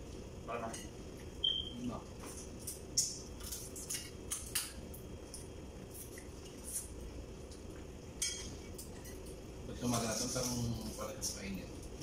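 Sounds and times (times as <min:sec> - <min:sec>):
crab shells cracking: 0:02.5 - 0:06.2.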